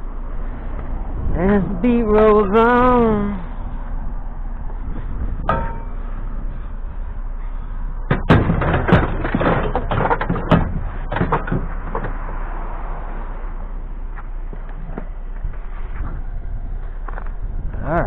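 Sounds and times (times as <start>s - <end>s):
scrap metal clanking: 5.4s - 6.6s, 8.1s - 12.2s.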